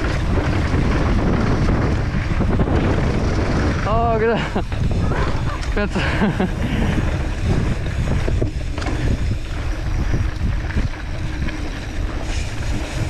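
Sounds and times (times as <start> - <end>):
bike tyres rumbling on dirt: 0.0 - 13.0
wind buffeting microphone: 0.0 - 13.0.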